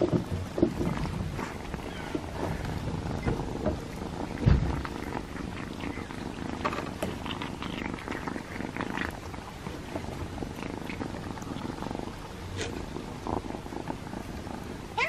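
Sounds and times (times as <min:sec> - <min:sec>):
cat purring: 0:00.0 - 0:15.0
cats chewing and lapping: 0:00.0 - 0:15.0.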